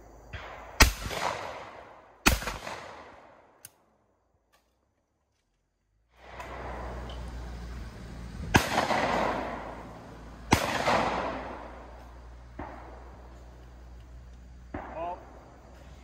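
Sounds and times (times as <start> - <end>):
shotgun shots with echo: 0.3 - 3.4, 8.5 - 9.9, 10.5 - 13.1.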